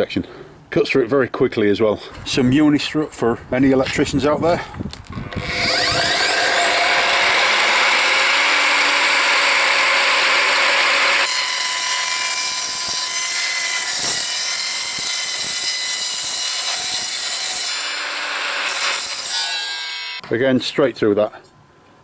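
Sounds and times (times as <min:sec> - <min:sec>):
saw motor whine: 0:05.2 - 0:11.3
saw blade grinding metal: 0:05.3 - 0:20.2.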